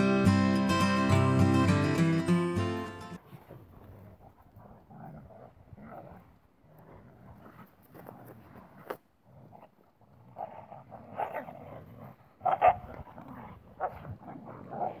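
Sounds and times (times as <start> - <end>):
dogs yipping and growling: 10.4 - 15.0.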